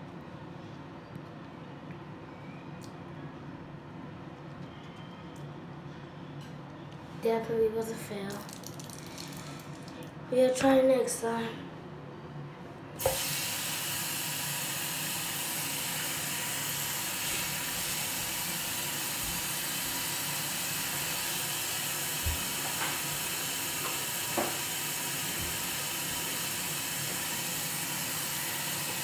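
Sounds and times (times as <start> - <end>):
tap water running into sink: 13.0 - 29.0.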